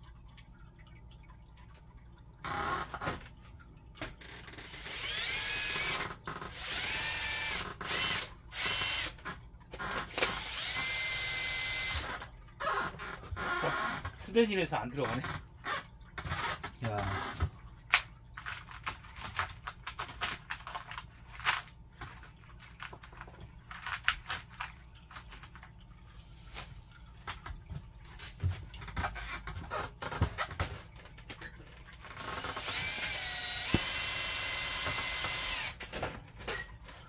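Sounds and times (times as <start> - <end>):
power drill whining: 4.6 - 9.2, 9.8 - 14.1, 32.2 - 35.8.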